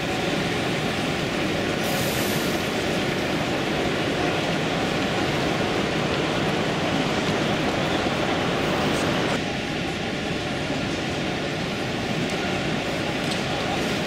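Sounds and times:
busy hall crowd noise: 0.0 - 14.0
model train running on rails: 0.0 - 14.0.

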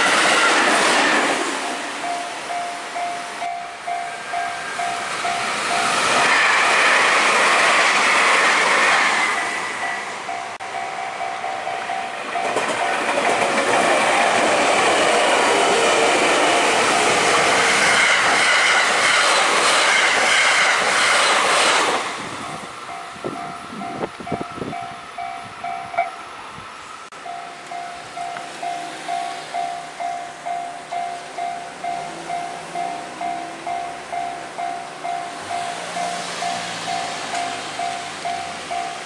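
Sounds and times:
electric train passing: 0.0 - 39.0
level crossing warning bell: 2.0 - 6.4, 9.3 - 17.6, 22.4 - 26.4, 27.2 - 39.0.

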